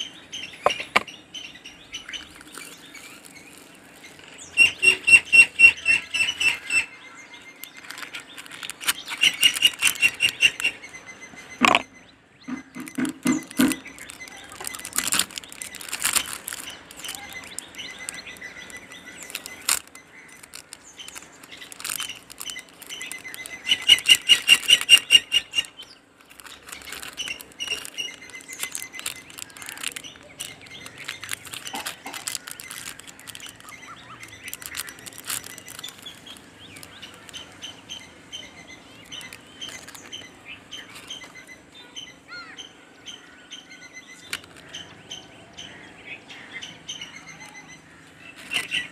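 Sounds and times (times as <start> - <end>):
fast trill of bird chirps: 0.0 - 44.3
birds chirping: 0.0 - 48.9
plastic packaging crinkling: 2.1 - 6.8, 7.6 - 10.9, 11.6 - 11.8, 12.6 - 41.5, 44.2 - 44.7, 48.4 - 48.9.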